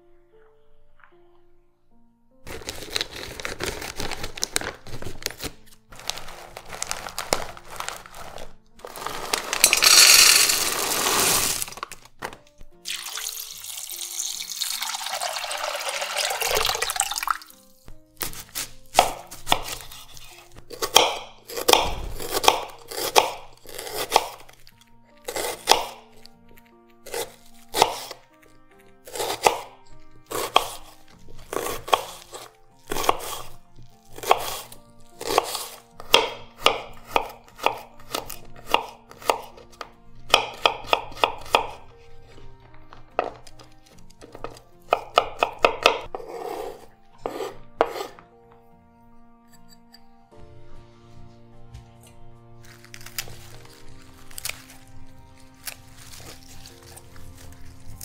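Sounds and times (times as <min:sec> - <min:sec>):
soft background music: 0:00.0 - 0:58.0
knife chopping on cutting board: 0:18.2 - 0:24.5, 0:25.3 - 0:26.3, 0:27.0 - 0:28.2, 0:29.0 - 0:29.7, 0:30.3 - 0:33.5, 0:34.1 - 0:41.9, 0:44.2 - 0:48.2.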